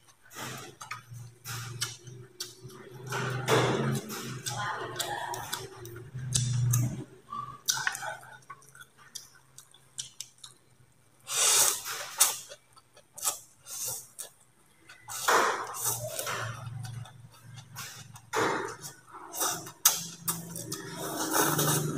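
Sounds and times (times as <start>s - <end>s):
chewing and mouth sounds: 0.0s - 21.9s
person slurping noodles: 11.3s - 12.5s, 17.7s - 21.9s.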